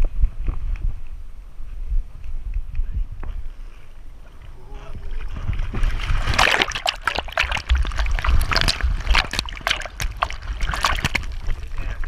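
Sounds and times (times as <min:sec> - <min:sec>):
water splashing around swimming dog: 0:05.2 - 0:12.0.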